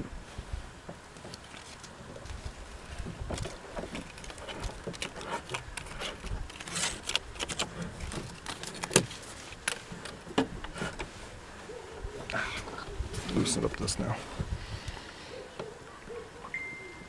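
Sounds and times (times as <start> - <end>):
paper tag rustling: 1.3 - 11.2.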